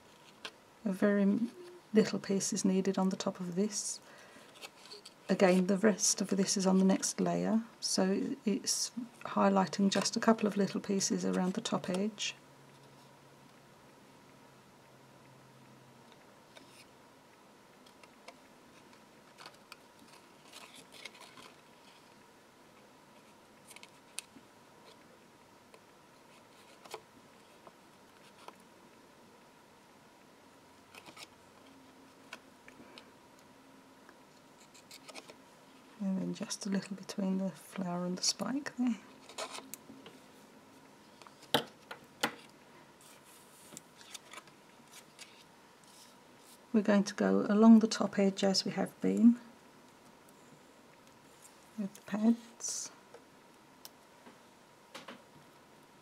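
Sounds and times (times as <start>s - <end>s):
paper rustling: 18.7s - 22.2s, 43.0s - 46.6s.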